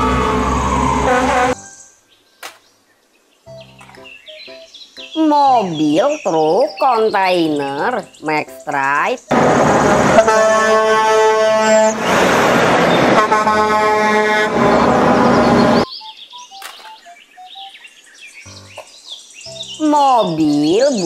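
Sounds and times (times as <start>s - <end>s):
truck horn blasts: 0.0s - 1.6s, 9.3s - 15.8s
truck engine and road noise: 0.0s - 2.6s, 6.8s - 17.7s
birds chirping: 1.6s - 9.3s, 11.2s - 12.2s, 12.8s - 21.0s
person speaking: 5.2s - 9.3s, 19.8s - 21.0s
small chirps: 15.8s - 17.8s.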